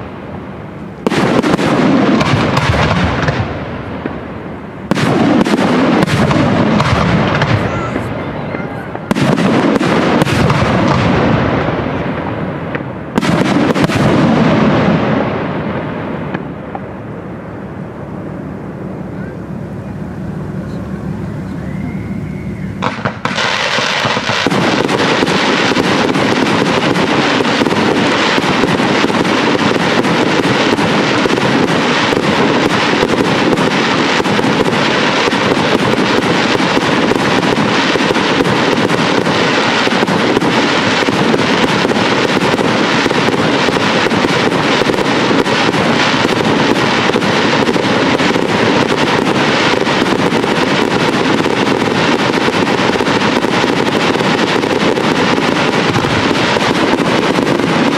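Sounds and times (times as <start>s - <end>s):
fireworks crackling and hissing: 0.0s - 57.9s.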